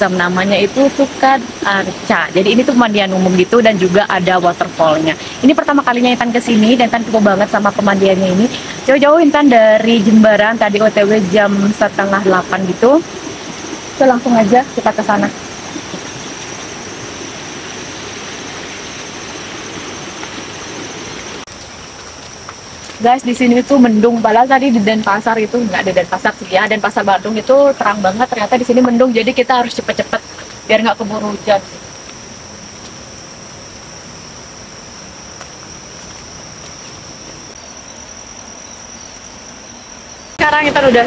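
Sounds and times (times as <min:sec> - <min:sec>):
background hiss: 0:00.0 - 0:41.0
insects chirring: 0:00.0 - 0:41.0
flowing water rushing: 0:10.8 - 0:21.6.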